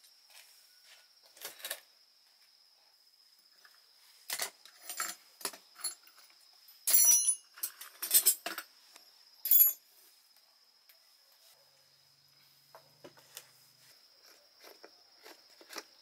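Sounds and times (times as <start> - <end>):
hard objects clinking: 6.9 - 8.6.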